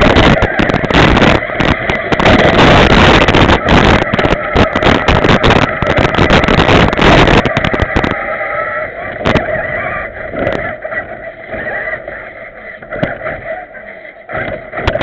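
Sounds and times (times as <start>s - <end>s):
toy truck motor whining: 0.0s - 15.0s
rattle of knocks on rough ground: 12.8s - 13.4s.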